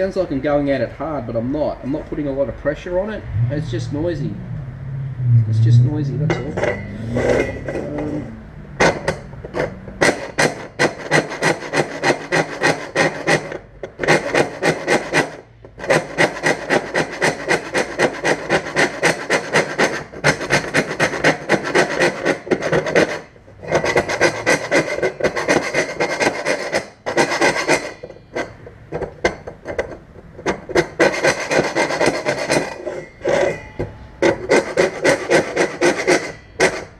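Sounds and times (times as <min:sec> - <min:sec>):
hand file rasping on metal: 0:08.8 - 0:28.6, 0:29.7 - 0:36.9.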